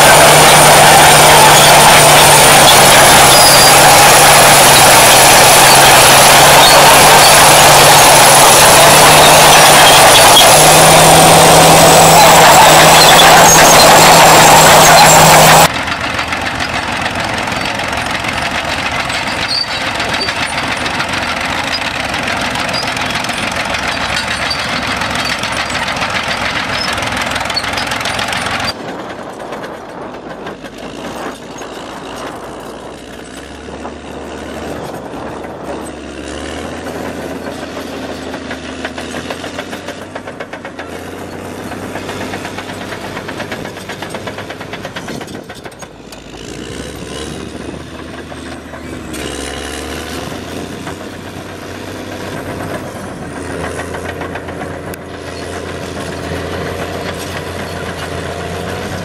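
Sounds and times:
loud even rush of noise: 0.0s - 15.7s
bulldozer diesel engine running: 0.0s - 59.0s
crawler tractor engine running: 0.0s - 59.0s.

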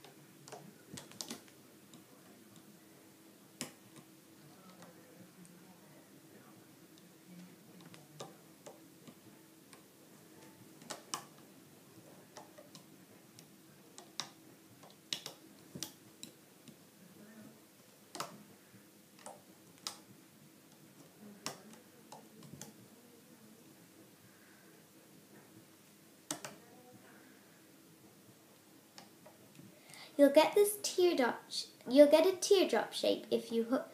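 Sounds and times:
plastic hook tapping loom: 14.0s - 16.8s, 18.1s - 18.4s, 26.3s - 26.6s.

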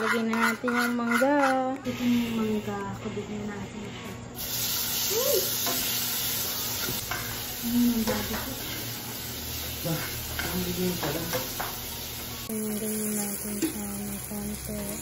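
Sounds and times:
fork clinking and scraping pan: 0.0s - 1.7s
fruit sizzling in a frying pan: 4.4s - 15.0s.

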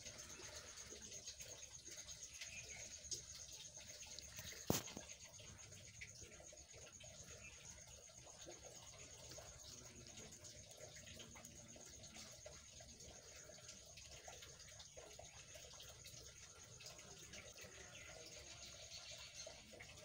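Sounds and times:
tiny ticks: 1.2s - 5.4s.

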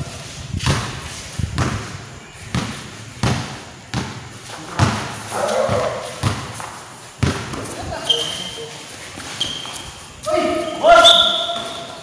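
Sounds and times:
basketball bouncing on court: 2.5s - 7.8s, 11.3s - 12.0s.

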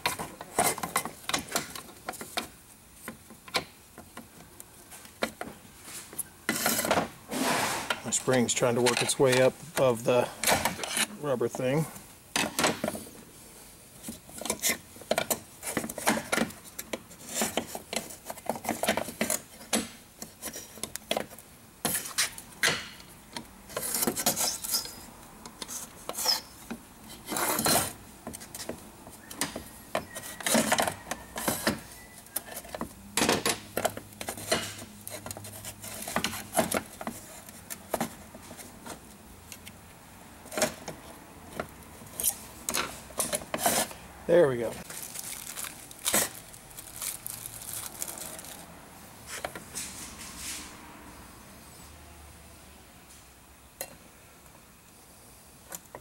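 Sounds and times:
metallic clicks and scraping: 7.8s - 11.7s, 14.0s - 39.8s, 40.4s - 44.0s.

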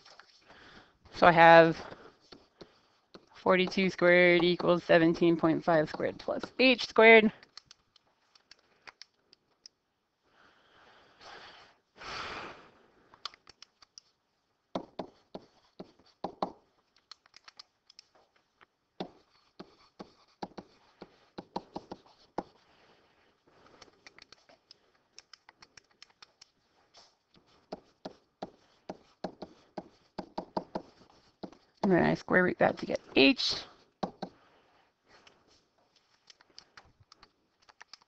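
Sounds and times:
tapping and clicking at a desk: 14.8s - 18.1s, 19.0s - 22.6s, 27.7s - 31.6s, 34.0s - 34.4s.

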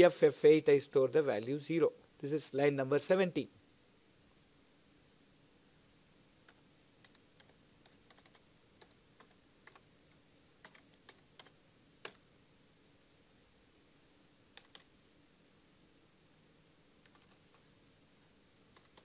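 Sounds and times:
faint high-pitched whine: 0.0s - 19.0s
keyboard keys clicking: 6.5s - 9.8s, 14.6s - 14.8s.

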